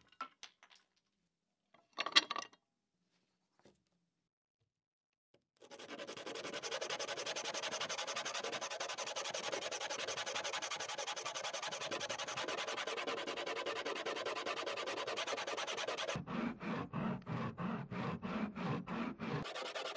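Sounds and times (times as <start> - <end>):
wood sanded by hand: 5.6 - 19.9.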